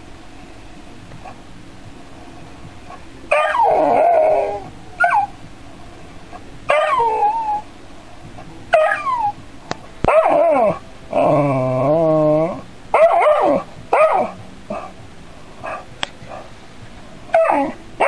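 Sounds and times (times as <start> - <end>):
dog whining and yelping: 3.3 - 5.3, 6.7 - 7.7, 8.7 - 9.4, 10.1 - 14.9, 17.3 - 17.8.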